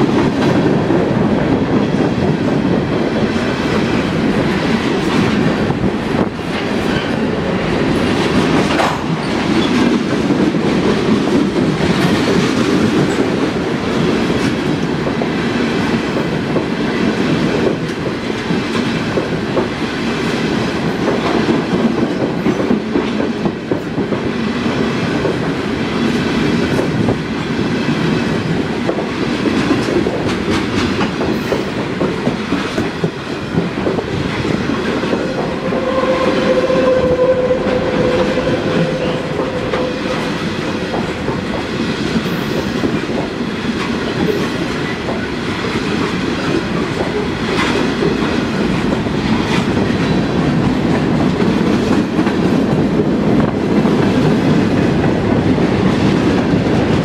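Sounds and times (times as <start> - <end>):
train wheels rumbling on rails: 0.0 - 57.0
steady whine: 35.1 - 41.8.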